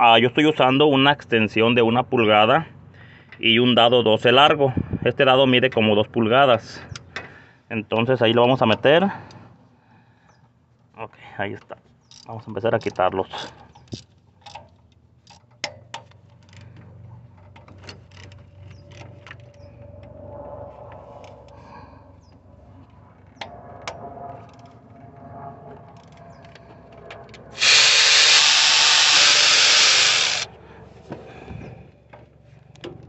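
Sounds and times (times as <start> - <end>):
power tool running: 27.6 - 30.5.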